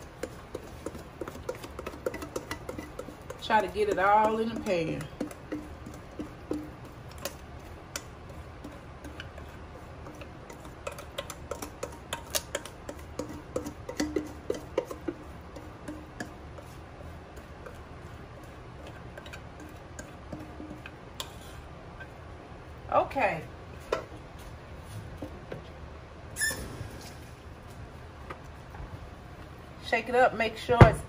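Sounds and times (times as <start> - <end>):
spatula scraping metal bowl: 0.0 - 22.2.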